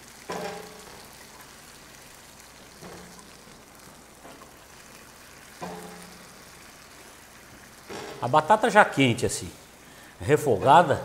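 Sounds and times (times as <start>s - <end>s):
potatoes sizzling in a pan: 0.0s - 11.0s
metal ladle knocking on pot: 0.3s - 1.0s.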